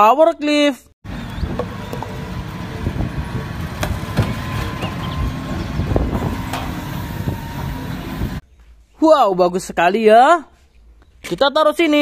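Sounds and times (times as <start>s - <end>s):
forklift engine running: 1.1s - 8.4s
sharp metal knocks and clanks: 3.8s - 5.0s.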